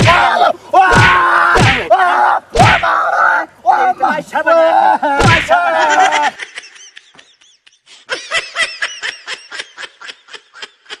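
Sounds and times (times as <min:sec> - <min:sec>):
high rapid snickering laugh: 0:05.8 - 0:11.0.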